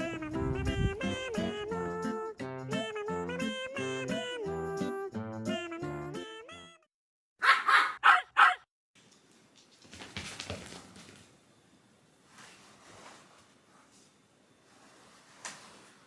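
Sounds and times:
dog barking: 0:07.4 - 0:08.7.

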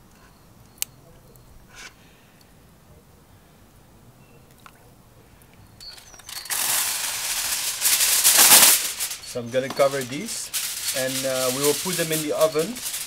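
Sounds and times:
aluminium foil crinkling: 0:05.8 - 0:13.0.

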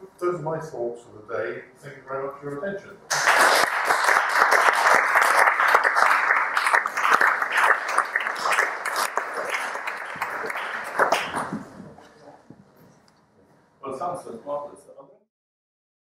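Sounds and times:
audience applauding: 0:03.1 - 0:11.9.

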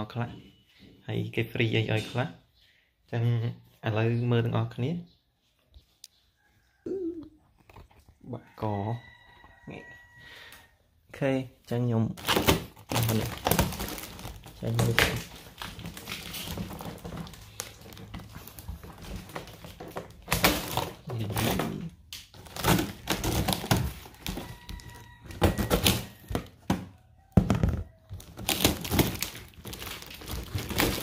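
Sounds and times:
packaging crinkling: 0:12.2 - 0:26.5, 0:28.1 - 0:31.0.

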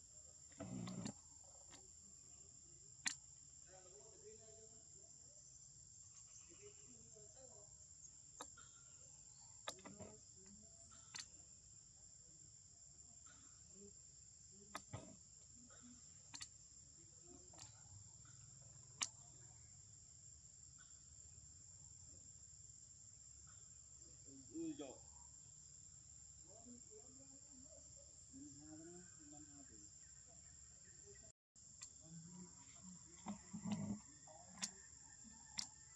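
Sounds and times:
sharp clicks: 0:09.6 - 0:10.2.

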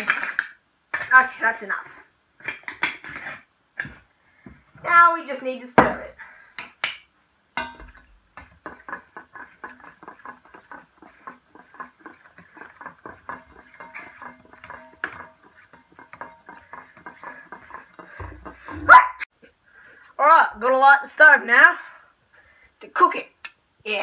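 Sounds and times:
utensil scraping metal bowl: 0:00.0 - 0:03.9, 0:07.6 - 0:18.9.

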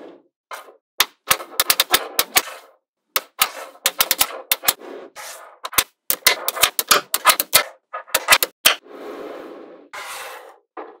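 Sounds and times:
magnetic balls clicking together: 0:01.0 - 0:02.4, 0:03.2 - 0:04.8, 0:05.7 - 0:08.8.

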